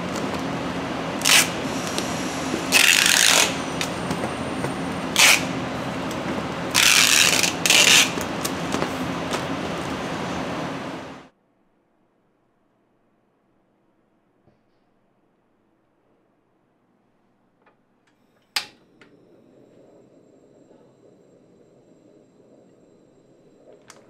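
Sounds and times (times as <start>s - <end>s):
factory machinery hum: 0.0s - 11.3s
packing tape pulled off dispenser: 1.2s - 1.6s, 5.2s - 5.5s.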